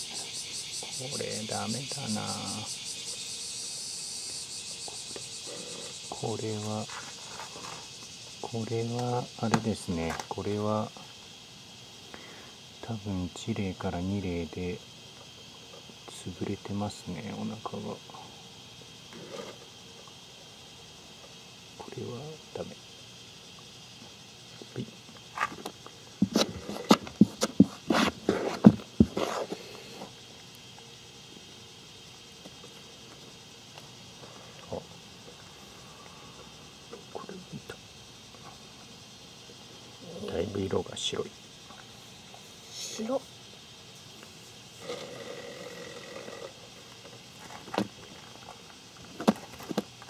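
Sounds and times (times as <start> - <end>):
scoop scraping soil: 26.2 - 30.1
spoon scraping through soil: 27.8 - 29.7.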